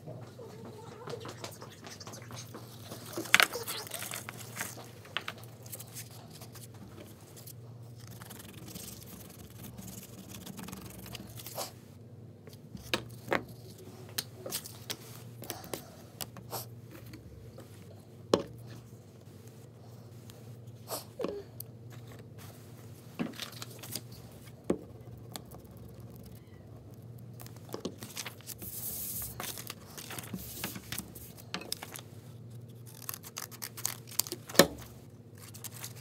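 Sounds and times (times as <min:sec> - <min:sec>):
low room hum: 0:00.0 - 0:36.0
paper scraping and rustling: 0:00.8 - 0:11.7, 0:27.4 - 0:36.0.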